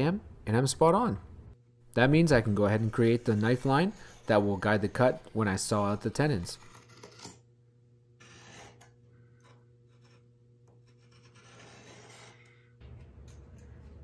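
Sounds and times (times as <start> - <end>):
knife scratching wood: 2.3 - 7.4, 8.2 - 12.5.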